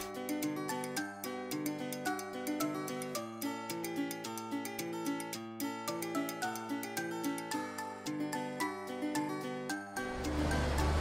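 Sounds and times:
plucked-note background music: 0.0s - 11.0s.

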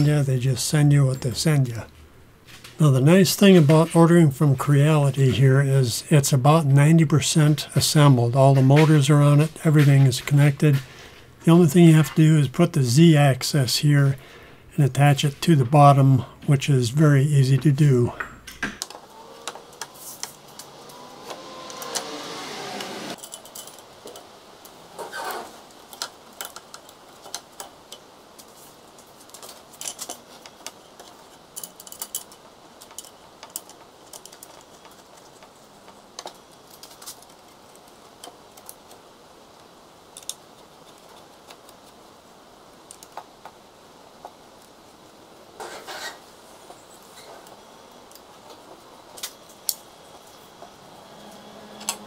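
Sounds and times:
scraping rubbing sound: 19.6s - 20.5s, 45.6s - 47.4s
small metal clicks and clinks: 23.2s - 24.2s, 31.0s - 35.0s.

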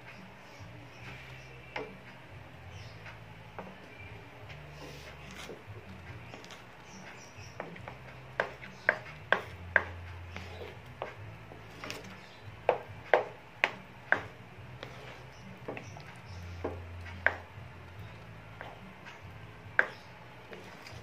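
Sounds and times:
spatula scraping a pan: 4.7s - 5.7s, 8.4s - 12.3s, 14.7s - 16.6s.

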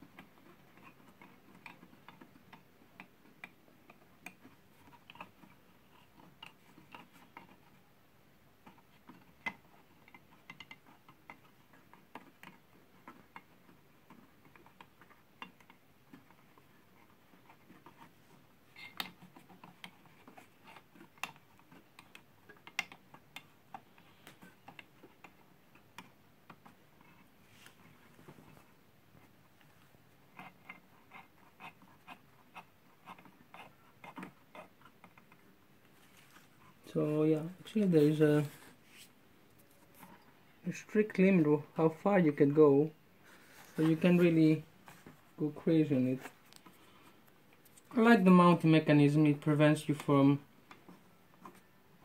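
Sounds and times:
small clicks of nuts turning: 18.7s - 27.3s.

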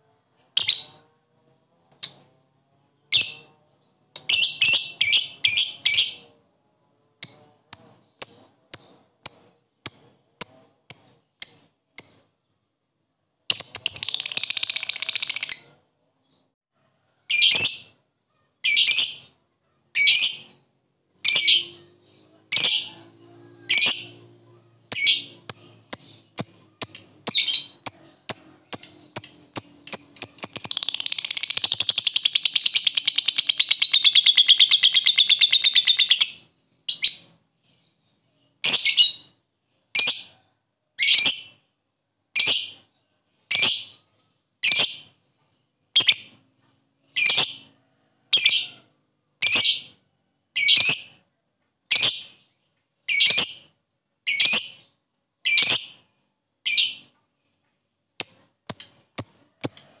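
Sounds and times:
lovebird chattering trill: 13.5s - 15.7s, 24.9s - 36.4s.

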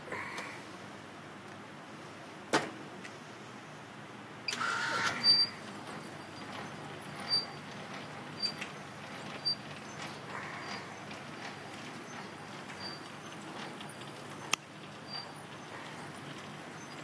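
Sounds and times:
short whirring burst: 4.5s - 13.7s
machine humming: 4.5s - 17.0s.

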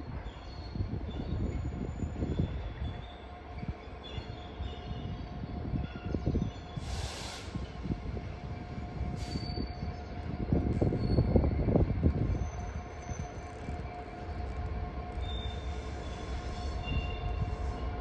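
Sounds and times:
diesel locomotive engine rumble: 0.0s - 18.0s
hiss bursts: 6.8s - 7.7s.

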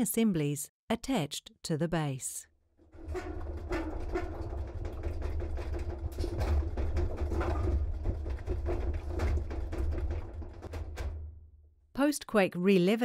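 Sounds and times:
rattling knocks: 2.8s - 11.7s.

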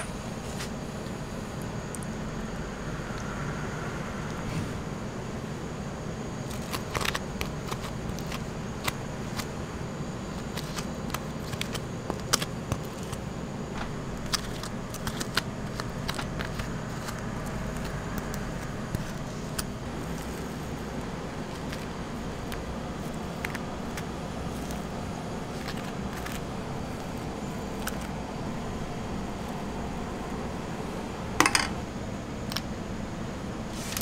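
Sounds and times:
background hum: 0.0s - 34.0s
spoon tapping plastic and steel: 31.4s - 31.8s.

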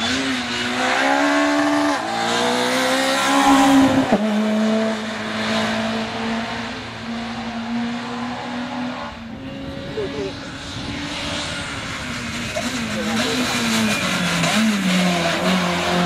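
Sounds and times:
rally car engine revving: 0.0s - 16.0s.

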